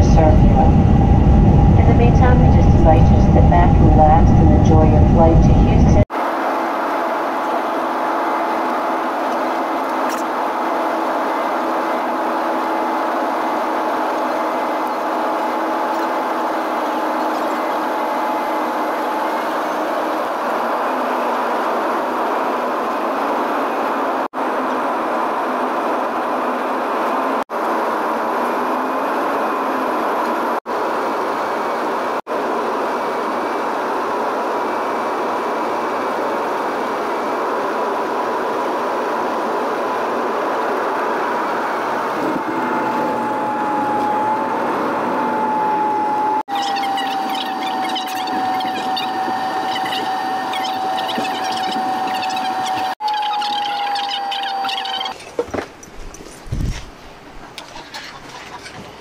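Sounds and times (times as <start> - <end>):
airliner cabin engine rush: 0.0 - 55.2.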